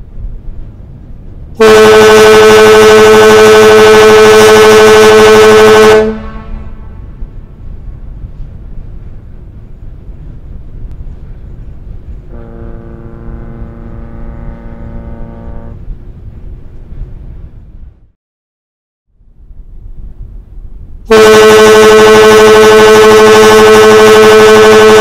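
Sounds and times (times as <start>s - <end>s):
low rumble of ferry: 0.0s - 18.2s, 19.1s - 25.0s
ship's whistle blast: 1.6s - 7.0s, 12.3s - 15.8s, 21.1s - 25.0s.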